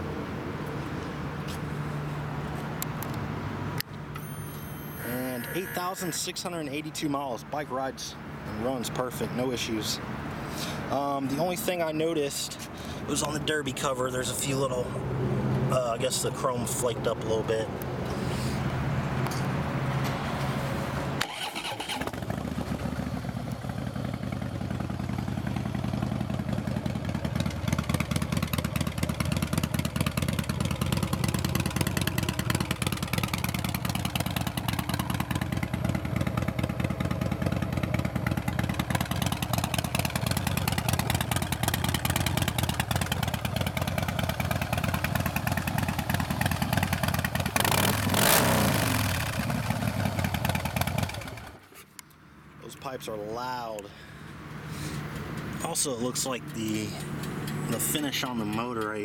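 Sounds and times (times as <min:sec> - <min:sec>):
motorcycle engine idling: 0:21.9 - 0:51.6.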